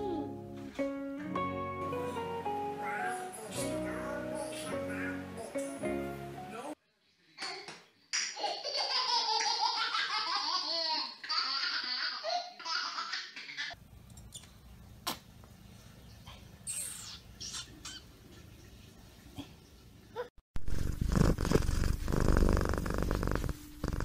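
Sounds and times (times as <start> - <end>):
baby laughing: 8.4 - 13.8.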